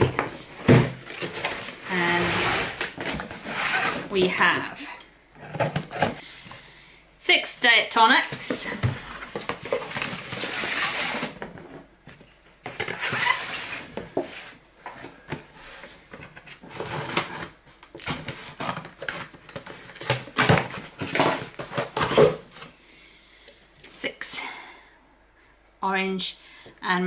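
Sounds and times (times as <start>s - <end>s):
cardboard flaps scraping: 0.1s - 4.4s, 8.3s - 11.9s.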